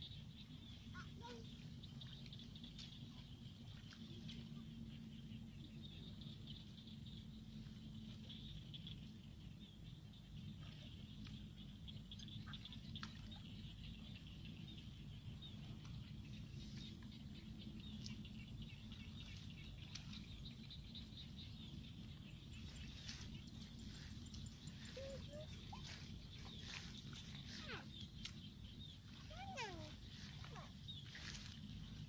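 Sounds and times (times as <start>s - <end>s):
low rumble: 1.6s - 32.0s
footsteps through wet grass: 15.5s - 32.0s
high chirping chorus: 18.8s - 32.0s.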